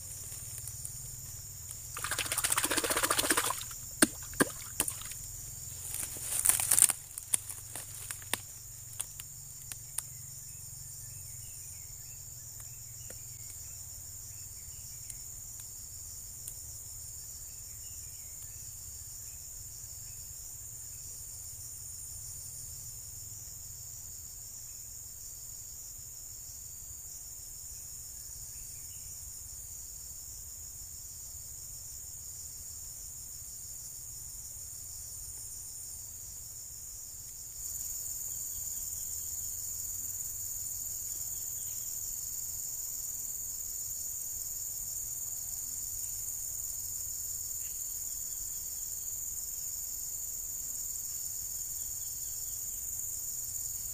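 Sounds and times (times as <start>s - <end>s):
rustles: 0.0s - 10.1s
insects singing: 0.0s - 24.2s, 31.3s - 53.9s.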